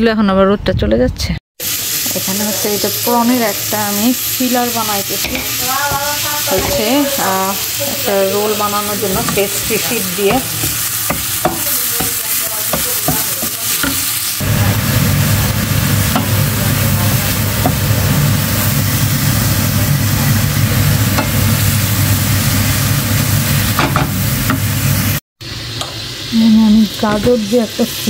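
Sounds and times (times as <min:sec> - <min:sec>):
food sizzling in a frying pan: 0:01.6 - 0:28.0
spatula scraping and tapping pan: 0:05.2 - 0:14.2.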